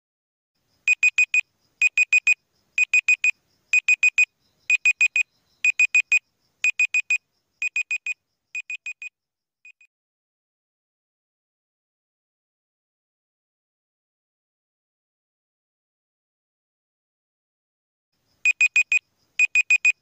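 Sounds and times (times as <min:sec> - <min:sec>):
short high-pitched timer beeps: 0:00.9 - 0:09.1, 0:18.5 - 0:20.0.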